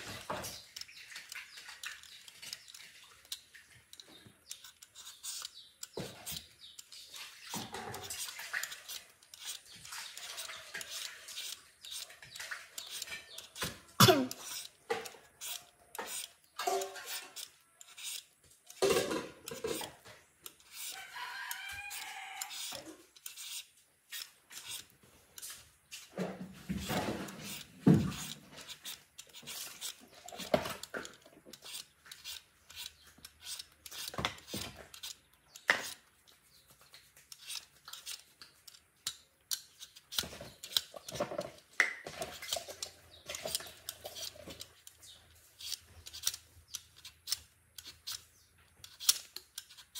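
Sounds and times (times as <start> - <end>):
rooster crowing: 21.0 - 22.7.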